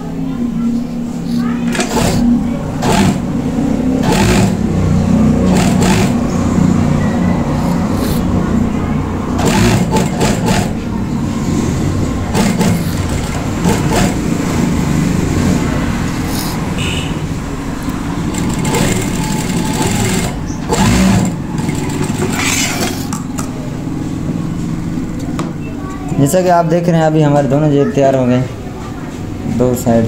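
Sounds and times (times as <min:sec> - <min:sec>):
sewing machine stitching: 0:01.6 - 0:03.4, 0:04.0 - 0:06.5, 0:09.3 - 0:10.8, 0:12.2 - 0:14.4, 0:18.2 - 0:23.1.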